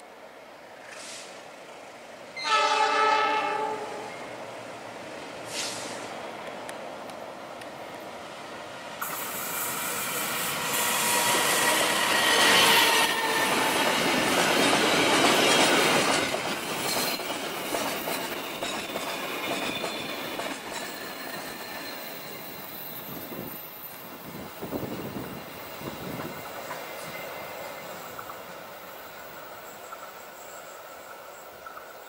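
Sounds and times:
train wheels clattering on rails: 9.0 - 32.0
clacks over rail joints: 13.5 - 22.0
high wheel squeal: 18.7 - 24.3.

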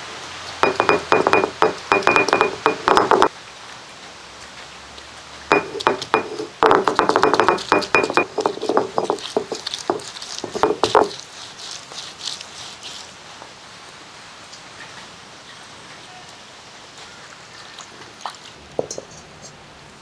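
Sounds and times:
stone roller crushing garlic: 5.6 - 12.7.

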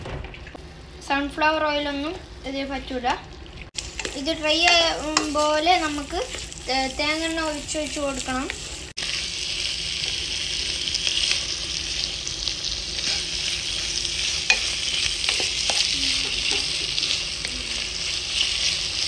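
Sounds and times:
meat sizzling in a pan: 3.7 - 19.0
wooden spatula scraping a pan: 3.9 - 6.9, 13.0 - 19.0.

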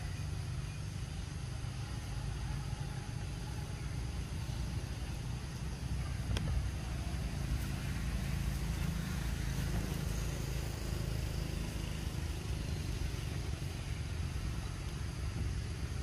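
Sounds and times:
low outdoor rumble: 0.0 - 16.0.

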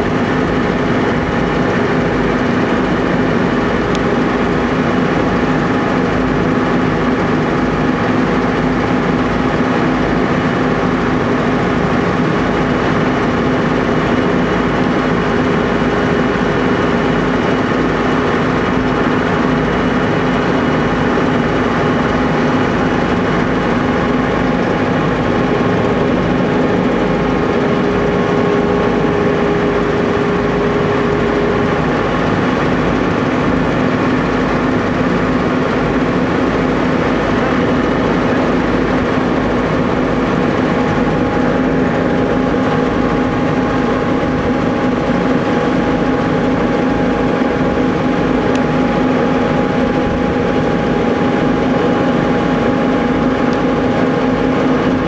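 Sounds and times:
boat engine droning: 0.0 - 55.0.

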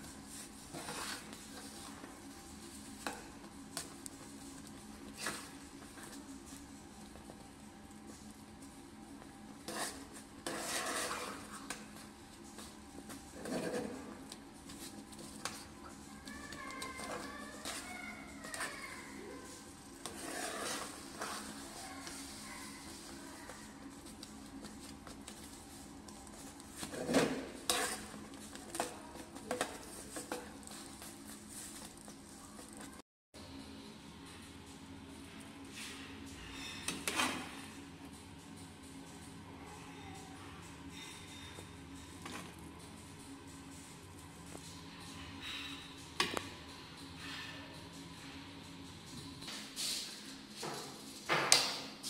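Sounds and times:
spatula scraping frying pan: 9.7 - 11.5, 20.0 - 21.6, 27.0 - 28.2.

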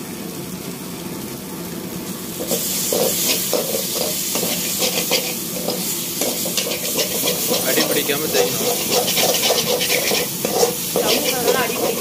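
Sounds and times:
food sizzling: 0.0 - 12.0
metal spoon scraping pan: 2.5 - 12.0.

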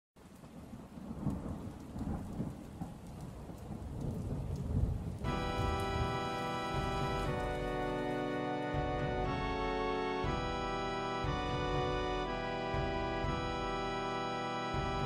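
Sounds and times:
steady rain: 0.2 - 15.0
low rumbling thunder: 0.5 - 8.1
music with held chord: 5.2 - 15.0.

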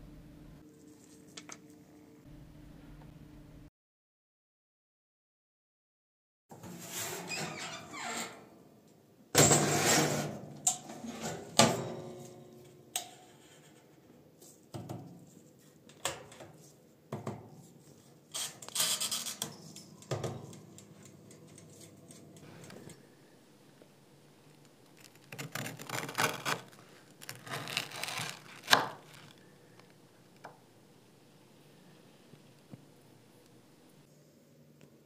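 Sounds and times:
metal baking tray scraping: 6.6 - 8.5, 9.4 - 11.6.

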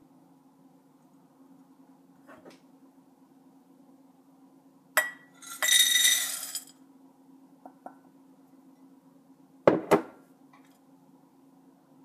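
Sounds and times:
cereal pouring into bowl: 5.4 - 6.7.

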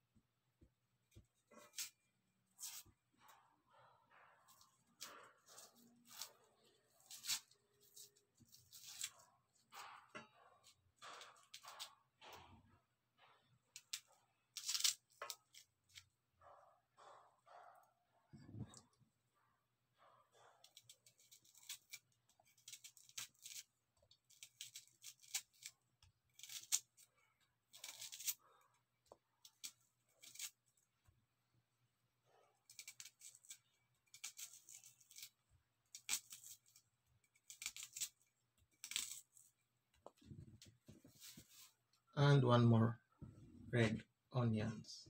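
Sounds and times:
knife cutting onion: 1.1 - 12.2, 20.1 - 30.8, 32.2 - 39.4.

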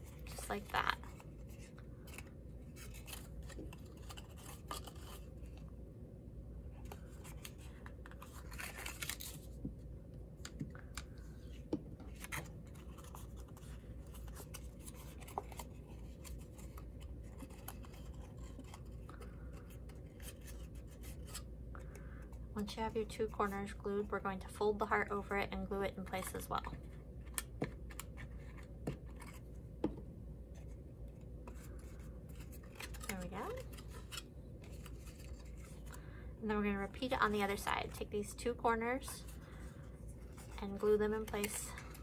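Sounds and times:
cardstock paper rustling: 0.0 - 5.6, 6.8 - 9.6, 11.5 - 21.4, 31.4 - 36.0.

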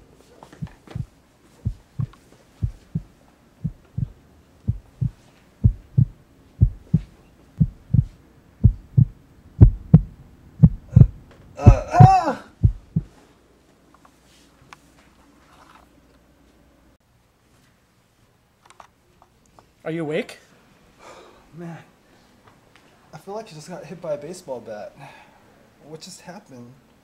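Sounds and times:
heartbeat thumps: 0.6 - 13.2
brief cry: 10.9 - 12.6.

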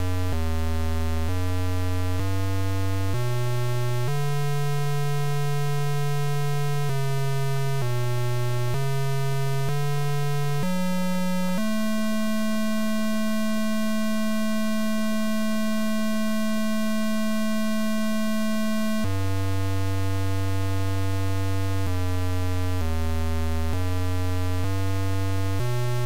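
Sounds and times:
electronic tone from pc speaker: 0.0 - 26.0.

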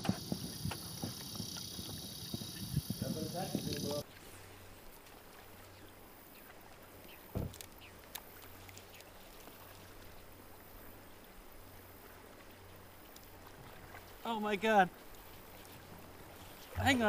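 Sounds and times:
river water flowing: 0.0 - 17.0
small click: 7.5 - 8.3.

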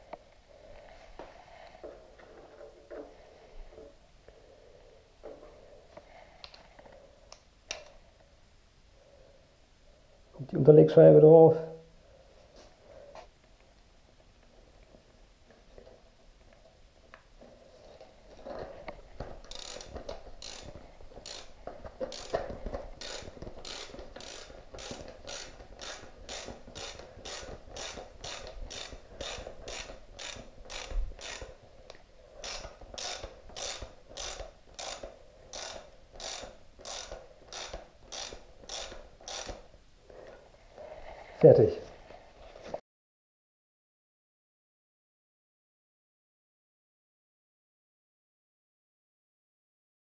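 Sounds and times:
hand ratchet clicking: 19.2 - 31.6, 32.4 - 39.7.

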